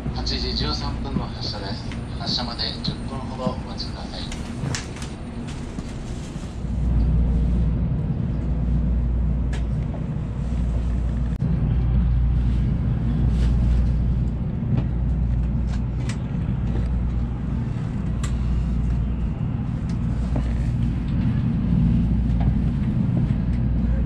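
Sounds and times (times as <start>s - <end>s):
train interior rumble: 0.0s - 24.0s.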